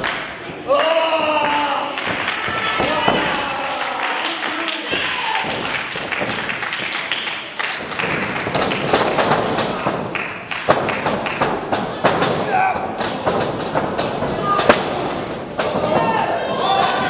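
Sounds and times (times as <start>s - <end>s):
crowd calling out: 0.6s - 5.7s, 9.9s - 17.0s
thuds on wrestling ring: 7.8s - 17.0s.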